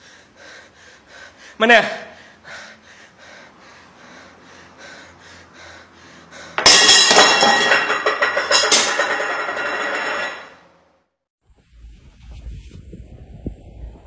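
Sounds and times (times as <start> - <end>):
dishes and glassware crashing: 6.6 - 10.6.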